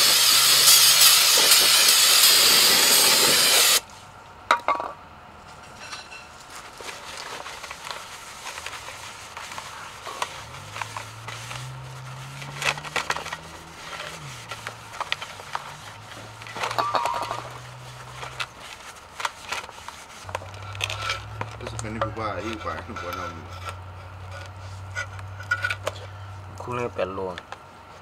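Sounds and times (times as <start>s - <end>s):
low background hum: 3.2s - 28.0s
towel scrubbing metal cover: 6.9s - 20.3s.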